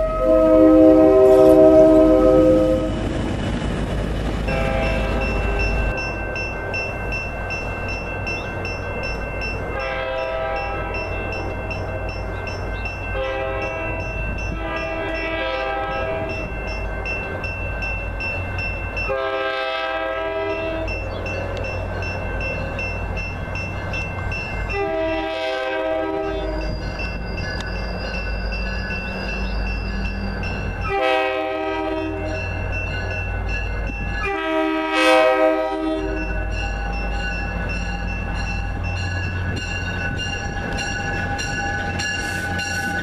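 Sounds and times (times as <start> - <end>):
train horn blasts: 0.0 - 3.1, 4.5 - 5.3, 9.8 - 11.2, 13.2 - 16.4, 19.1 - 20.9, 24.7 - 26.7, 30.8 - 32.4, 34.2 - 36.4
crossing signal bell ringing: 0.0 - 3.4, 4.3 - 43.0.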